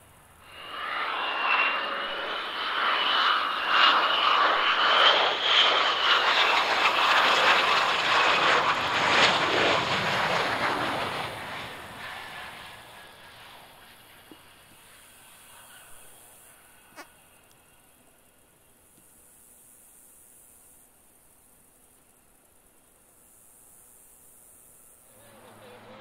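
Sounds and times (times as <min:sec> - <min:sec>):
jet roar with high whine: 0:00.0 - 0:19.6, 0:24.9 - 0:26.0.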